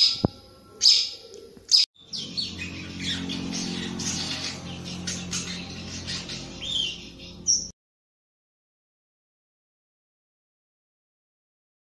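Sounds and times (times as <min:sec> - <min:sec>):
bird chirping: 0:00.0 - 0:07.8
steady low hum: 0:02.0 - 0:07.7.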